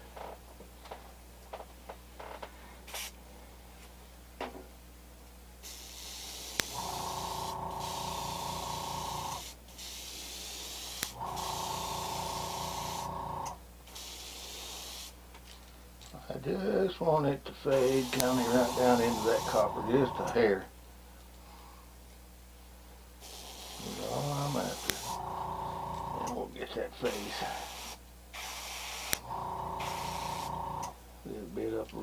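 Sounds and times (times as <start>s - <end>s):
airbrush spraying paint: 2.9s - 3.2s, 5.6s - 15.2s, 17.7s - 20.4s, 23.2s - 26.3s, 27.0s - 30.9s.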